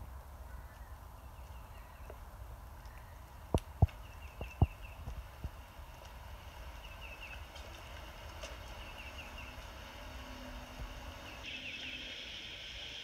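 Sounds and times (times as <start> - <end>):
small birds chirping: 0.4 - 13.0
steady high buzz: 8.7 - 13.0.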